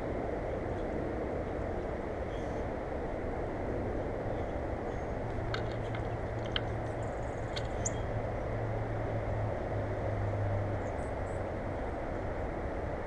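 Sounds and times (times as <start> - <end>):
low droning hum: 0.0 - 13.0
outdoor rumble and hiss: 0.0 - 13.0
faint high chirps and ticks: 5.5 - 8.1.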